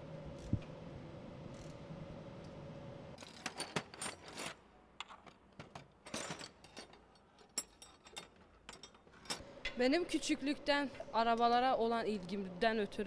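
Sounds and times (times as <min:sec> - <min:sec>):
metal tools clinking: 0:03.2 - 0:04.6, 0:05.7 - 0:09.4
faint steady hum: 0:04.0 - 0:13.0.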